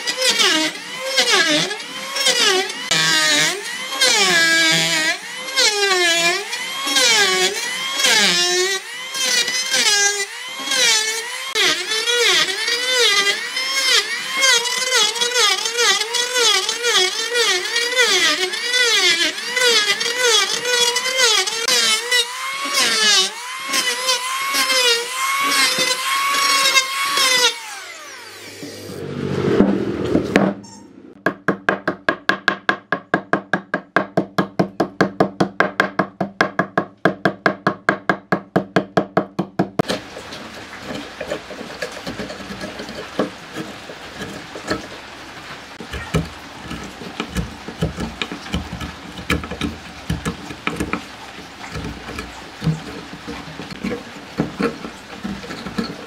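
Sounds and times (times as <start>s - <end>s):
electric planer cutting wood: 0.0s - 31.2s, 39.8s - 56.0s
chisel strokes: 39.8s - 56.0s.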